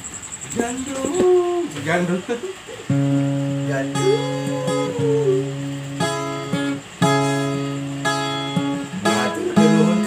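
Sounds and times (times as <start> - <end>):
strummed chords: 2.8 - 10.0.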